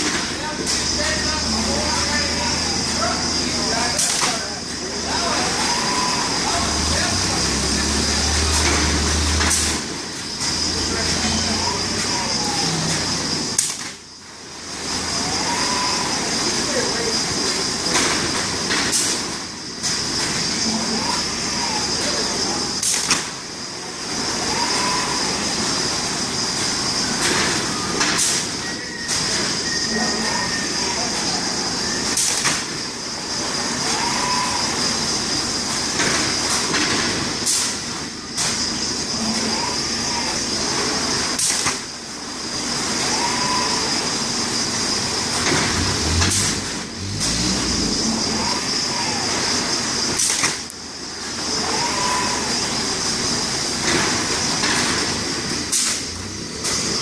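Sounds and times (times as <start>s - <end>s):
sharp air release: 7.5s - 10.7s, 17.9s - 20.9s, 22.7s - 23.6s, 25.4s - 29.7s, 32.0s - 33.6s, 35.2s - 39.2s, 41.2s - 48.7s, 49.3s - 57.0s.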